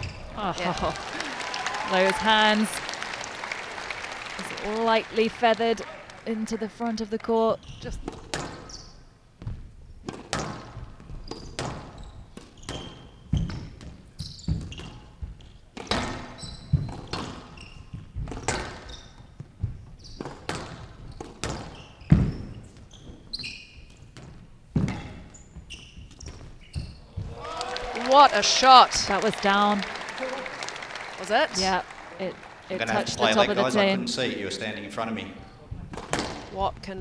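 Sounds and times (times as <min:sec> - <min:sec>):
court shoes squeaking: 0:00.0 - 0:00.4, 0:07.4 - 0:27.4, 0:35.4 - 0:37.0
squash ball hits: 0:08.0 - 0:08.7, 0:09.4 - 0:22.8, 0:24.0 - 0:25.3, 0:35.7 - 0:36.9.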